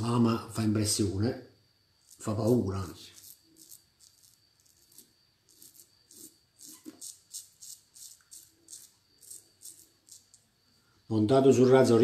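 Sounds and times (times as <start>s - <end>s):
razor scraping stubble: 2.0s - 10.4s.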